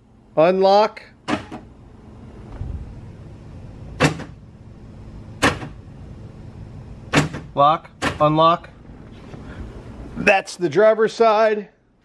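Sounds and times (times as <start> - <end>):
door lock actuator clunking: 4.0 - 4.4, 7.1 - 8.5.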